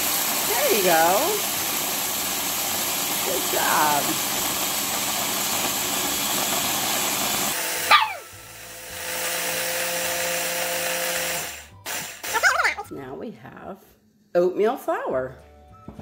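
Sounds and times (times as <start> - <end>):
food chopper motor grinding: 0.0 - 12.9
dog howling: 7.9 - 8.3.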